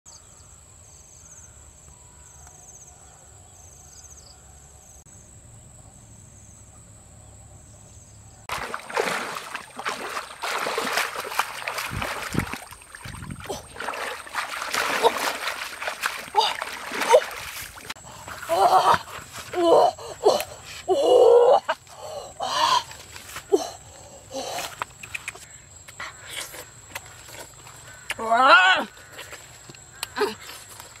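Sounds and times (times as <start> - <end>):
insects buzzing: 3.6 - 31.0
splashing in muddy water: 8.5 - 25.4.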